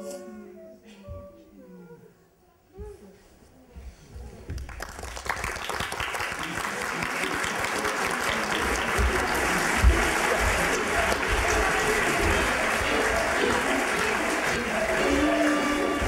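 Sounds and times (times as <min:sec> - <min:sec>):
audience applauding: 0:04.6 - 0:16.0.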